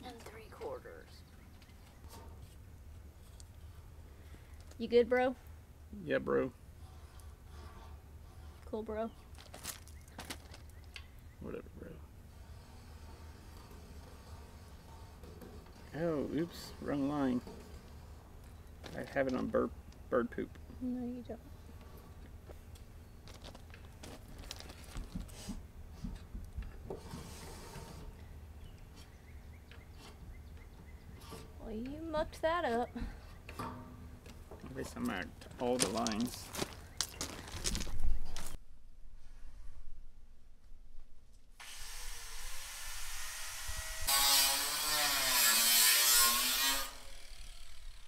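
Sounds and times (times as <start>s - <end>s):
scratchy rub: 6.8s - 8.8s, 12.3s - 18.4s, 27.0s - 28.2s, 44.1s - 47.2s
marker drawn across steel: 27.0s - 28.1s
power tool cutting metal: 41.6s - 48.0s.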